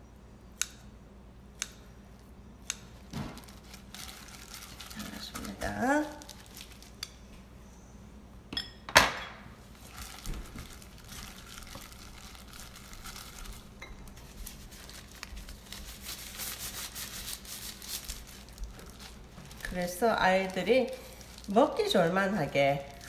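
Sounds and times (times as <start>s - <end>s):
plastic glove crinkling: 2.9s - 7.1s, 9.6s - 23.0s.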